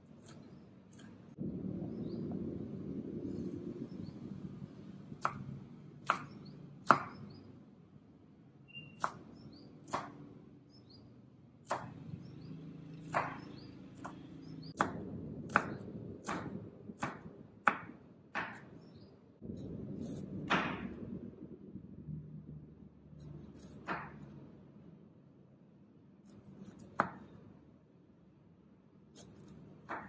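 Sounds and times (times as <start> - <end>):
knife chopping on cutting board: 5.2 - 7.3, 9.0 - 9.3, 9.9 - 10.2, 11.6 - 12.0, 13.1 - 18.8, 20.0 - 21.0, 23.6 - 24.3, 26.2 - 27.4, 29.1 - 30.0.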